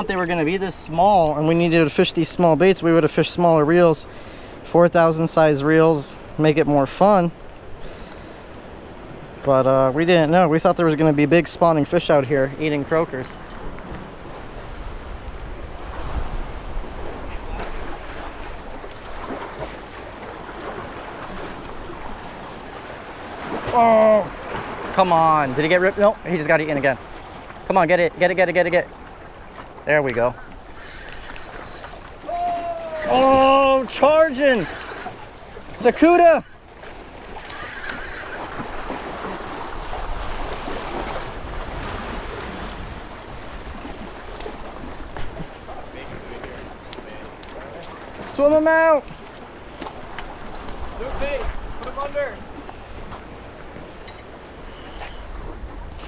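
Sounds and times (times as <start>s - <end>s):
sea waves washing against rocks: 0.0s - 56.0s
wind gusting on microphone: 12.7s - 27.7s, 28.9s - 48.3s, 49.0s - 56.0s
faint clicks: 46.8s - 48.0s.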